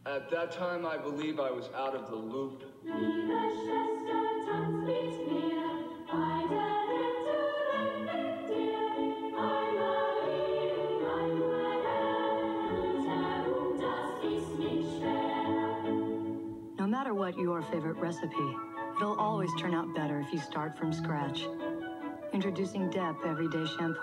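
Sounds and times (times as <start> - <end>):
choir singing held chords: 2.8 - 16.8.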